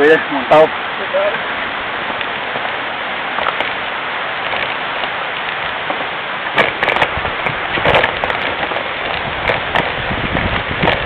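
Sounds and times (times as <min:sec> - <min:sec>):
tyre and wind hiss: 0:00.0 - 0:11.0
bike rattling and knocking: 0:02.0 - 0:03.8, 0:04.4 - 0:11.0.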